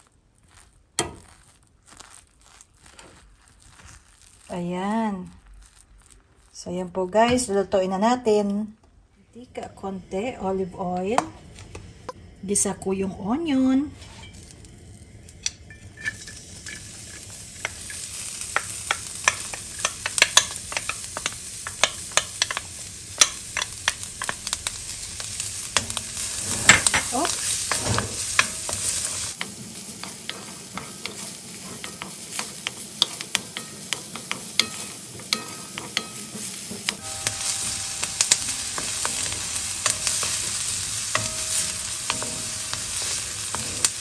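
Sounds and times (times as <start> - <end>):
onion sizzling in oil: 0.0 - 6.9, 9.6 - 44.0
wooden spoon scraping a pan: 15.7 - 44.0.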